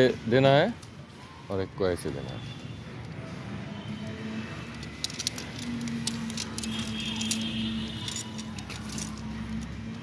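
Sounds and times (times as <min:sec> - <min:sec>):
tent poles clicking and tapping: 0:04.7 - 0:10.0.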